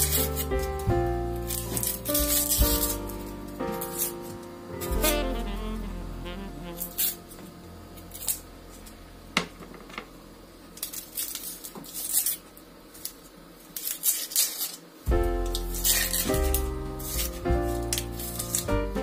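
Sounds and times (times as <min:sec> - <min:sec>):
knife peeling onion skin: 0:00.0 - 0:00.5, 0:10.8 - 0:14.9, 0:15.5 - 0:18.7
music: 0:00.0 - 0:08.5, 0:15.1 - 0:19.0.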